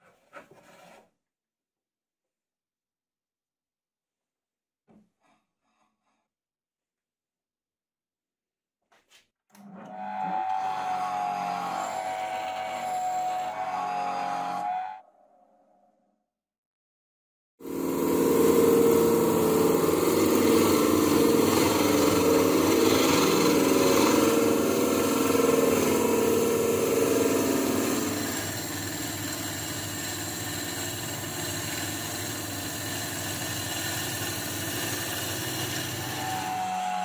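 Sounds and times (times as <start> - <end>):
wood lathe cutting wood: 9.6 - 15.0, 17.6 - 37.0.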